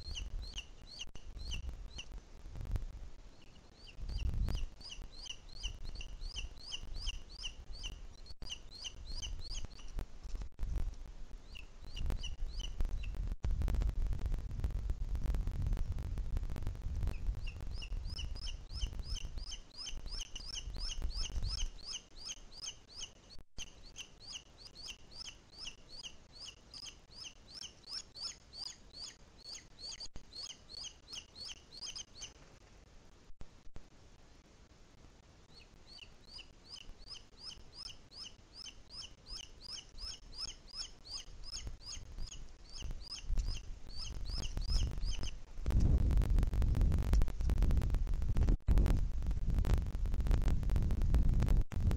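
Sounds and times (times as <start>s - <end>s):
low wind rumble: 0.0s - 21.9s, 40.0s - 51.9s.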